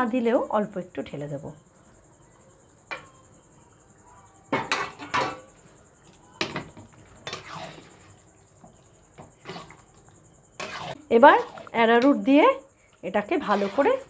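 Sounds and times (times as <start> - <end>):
metal utensils clanking on pan: 4.6 - 5.5.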